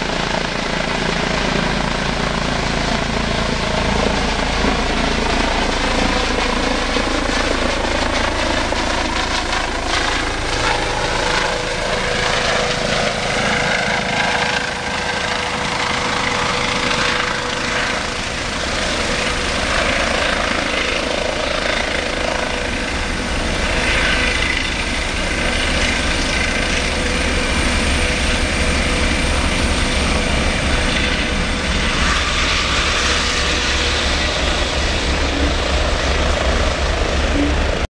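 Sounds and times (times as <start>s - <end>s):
helicopter rotor and turbine: 0.0s - 37.9s
thin high whine: 25.8s - 37.9s.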